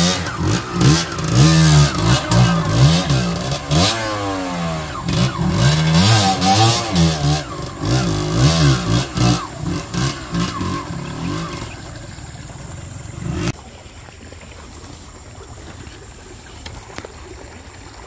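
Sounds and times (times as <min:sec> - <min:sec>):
motorcycle engine revving: 0:00.0 - 0:13.6.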